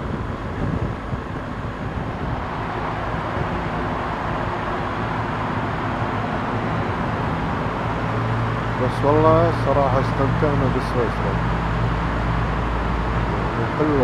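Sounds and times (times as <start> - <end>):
motorcycle engine hum: 0.0 - 14.0
wind and road noise: 0.0 - 14.0.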